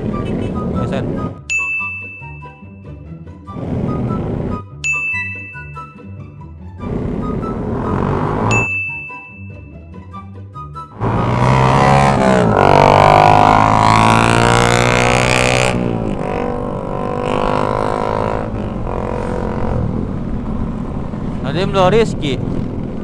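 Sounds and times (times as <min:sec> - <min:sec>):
rising chime notes: 0:01.5 - 0:02.9, 0:04.8 - 0:06.2, 0:08.5 - 0:09.8
motorcycle engine accelerating: 0:03.5 - 0:04.6, 0:06.8 - 0:08.7, 0:10.9 - 0:23.0
wind noise: 0:14.8 - 0:23.0.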